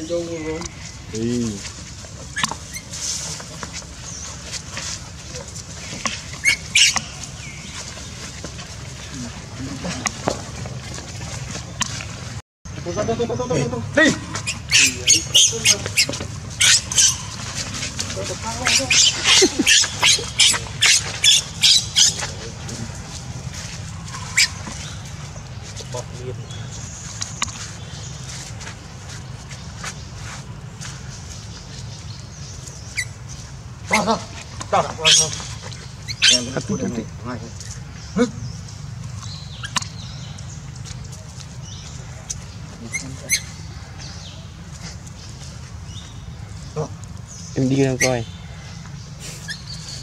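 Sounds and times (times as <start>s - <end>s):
baby monkey shrill squeals: 6.4s - 7.1s, 14.4s - 17.4s, 18.6s - 22.2s, 24.2s - 24.6s, 35.0s - 36.6s, 42.9s - 43.6s.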